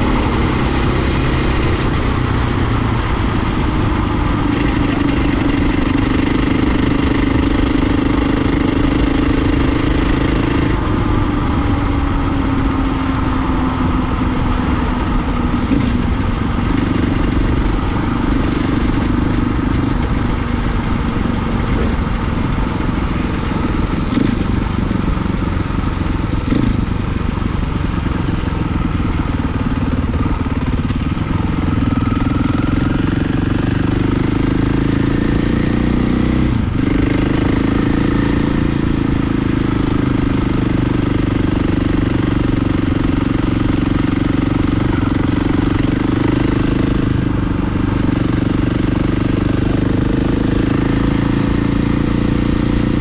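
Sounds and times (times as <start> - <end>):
dirt bike engine running: 0.0 - 53.0
wind and road noise: 0.0 - 53.0.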